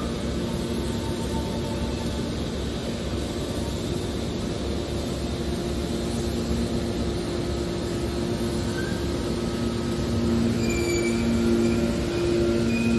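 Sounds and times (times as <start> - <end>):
baler machine hum: 5.4 - 12.9
faint high-pitched squeals: 8.6 - 9.4, 10.2 - 12.9.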